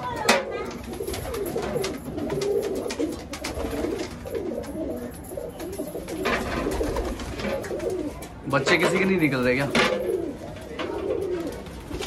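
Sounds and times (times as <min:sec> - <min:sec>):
pigeons cooing: 0:00.0 - 0:12.0
wings flapping: 0:00.7 - 0:04.5, 0:05.6 - 0:08.1.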